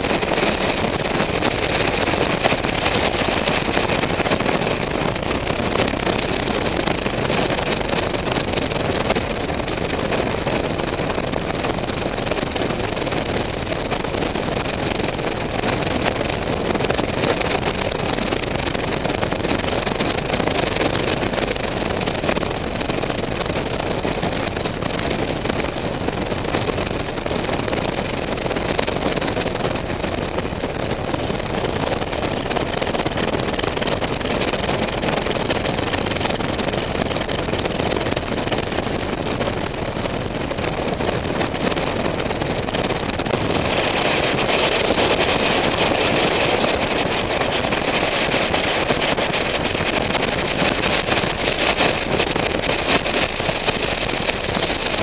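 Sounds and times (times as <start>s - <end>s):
strong wind on microphone: 0.0s - 55.0s.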